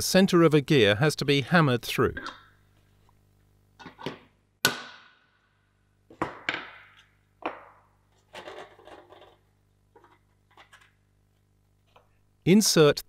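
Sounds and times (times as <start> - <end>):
tools set down on workbench: 3.8 - 4.3, 6.1 - 9.4
hammer striking metal punch: 4.6 - 5.3
parts clattering: 6.1 - 12.2.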